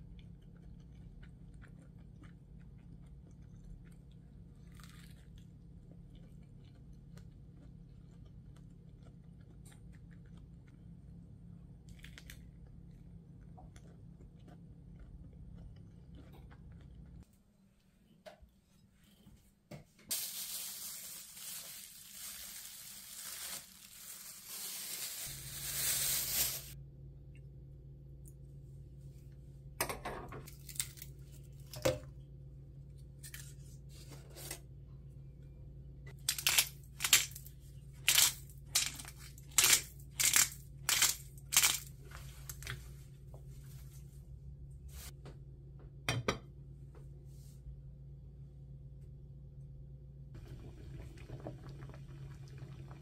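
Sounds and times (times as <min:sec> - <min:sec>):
induction hob humming: 0:49.2 - 0:53.0.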